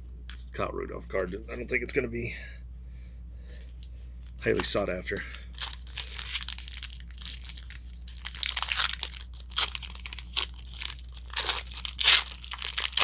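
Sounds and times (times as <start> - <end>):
trading cards rustling: 3.6 - 13.0.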